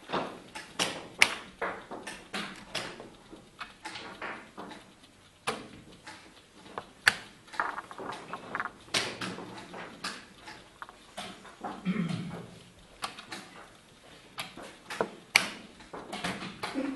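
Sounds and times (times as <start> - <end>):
chess clock buttons clicking: 0.5 - 16.7.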